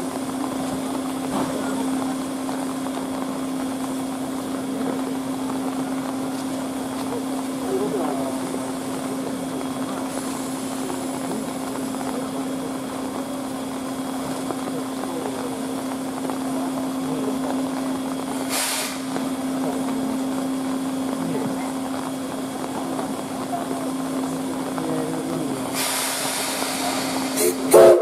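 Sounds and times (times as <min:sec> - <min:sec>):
hiss of leaking steam: 0:00.0 - 0:28.0
steam locomotive hum: 0:00.0 - 0:28.0
short sharp steam hiss: 0:18.4 - 0:19.2, 0:25.7 - 0:28.0.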